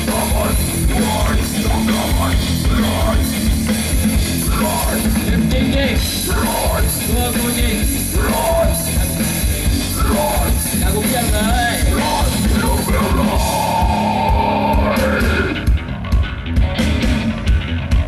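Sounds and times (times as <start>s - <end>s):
distorted guitar and bass: 0.0s - 18.0s
fast drum kit: 0.0s - 18.0s
harsh voice shouting: 4.4s - 9.0s, 9.9s - 15.6s.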